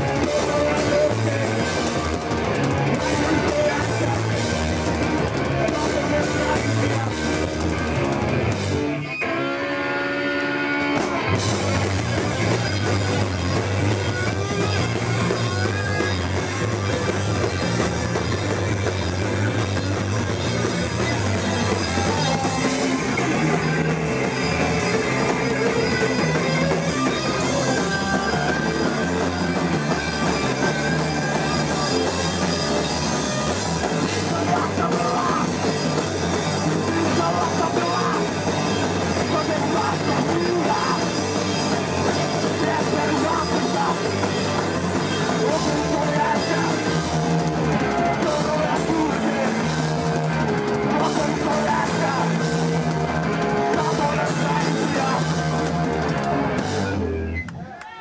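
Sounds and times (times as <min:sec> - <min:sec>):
punk band playing live: 0:00.0 - 0:58.0.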